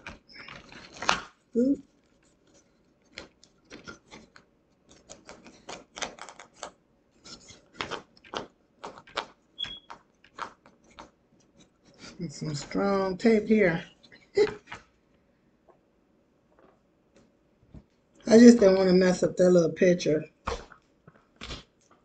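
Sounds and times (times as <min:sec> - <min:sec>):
tape crinkling: 0:00.0 - 0:12.8, 0:20.4 - 0:22.0.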